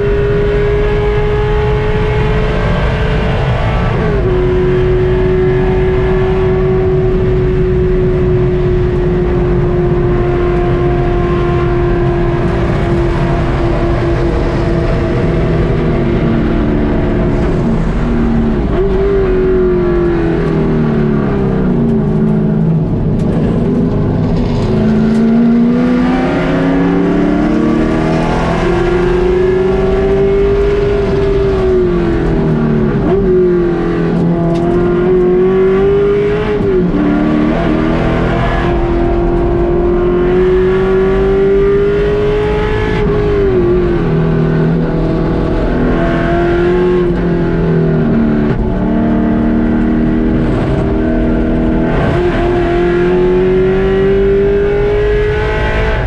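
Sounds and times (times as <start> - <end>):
race car engine revving: 0.0 - 56.0
road and wind noise: 0.0 - 56.0.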